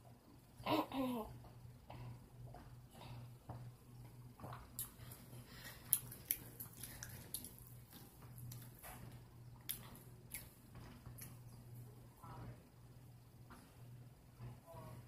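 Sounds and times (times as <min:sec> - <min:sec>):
faint low hum: 0:00.0 - 0:15.0
wet chewing sounds: 0:04.4 - 0:11.6.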